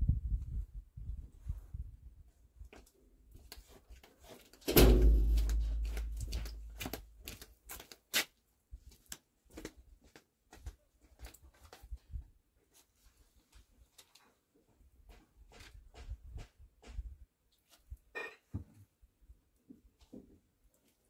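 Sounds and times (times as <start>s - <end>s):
loud thud: 4.7s - 6.2s.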